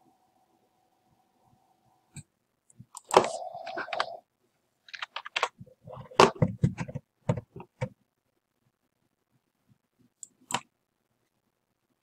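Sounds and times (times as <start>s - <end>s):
mouse clicks: 10.2s - 10.7s.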